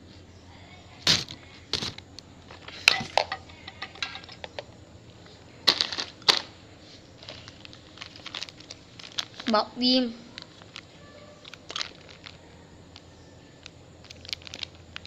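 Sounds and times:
plastic bag crinkling: 0:07.2 - 0:15.0.

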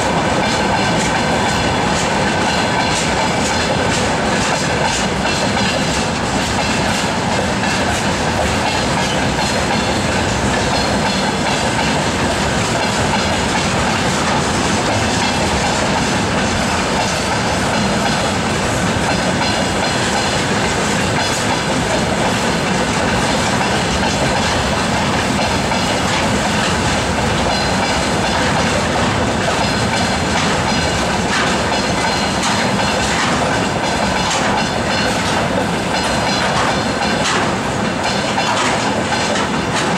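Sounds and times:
freight train rumbling past: 0:00.0 - 0:39.9
wheels clattering over rail joints: 0:00.0 - 0:39.9.

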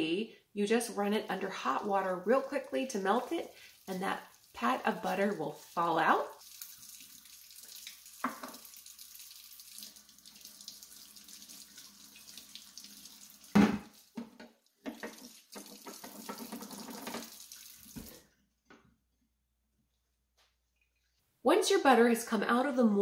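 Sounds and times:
faucet running into sink: 0:02.8 - 0:14.2, 0:14.8 - 0:18.2.

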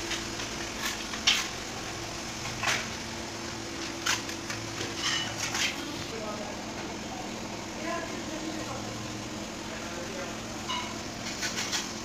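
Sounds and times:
sharp clicks and scuffs: 0:00.0 - 0:01.6, 0:03.8 - 0:05.9.

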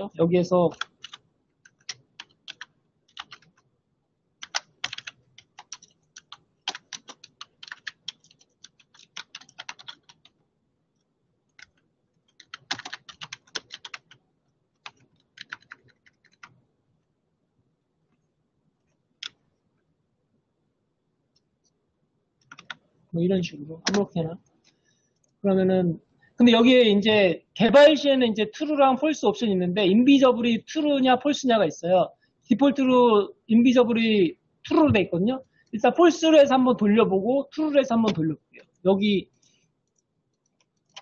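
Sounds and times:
typing on computer keyboard: 0:00.7 - 0:03.7, 0:04.4 - 0:10.4, 0:11.5 - 0:16.6, 0:22.4 - 0:22.8, 0:23.9 - 0:24.8, 0:39.8 - 0:41.0.

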